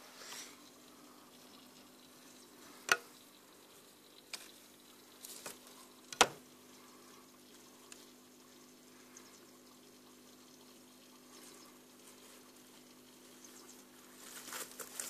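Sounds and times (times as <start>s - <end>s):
faint steady hum: 0.0s - 15.0s
sharp clicks and knocks: 2.9s - 3.1s, 6.1s - 6.4s.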